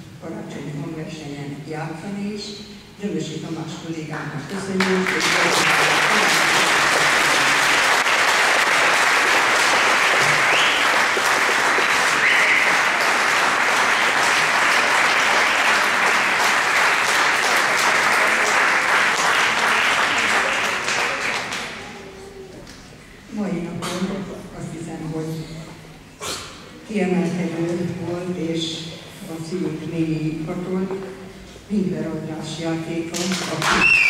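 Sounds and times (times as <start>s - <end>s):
audience applauding: 4.8s - 22.0s.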